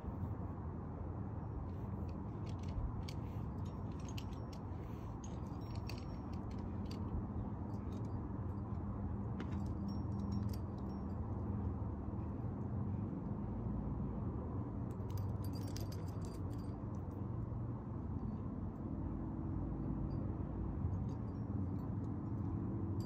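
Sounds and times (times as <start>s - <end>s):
climbing gear clinking: 1.7s - 11.7s, 14.9s - 17.2s.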